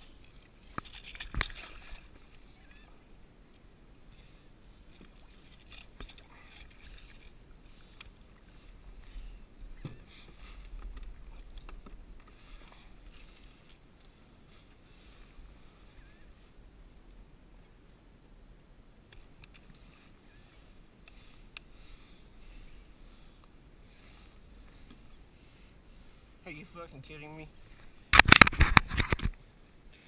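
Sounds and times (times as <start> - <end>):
water lapping against kayak hull: 0.0 - 3.1.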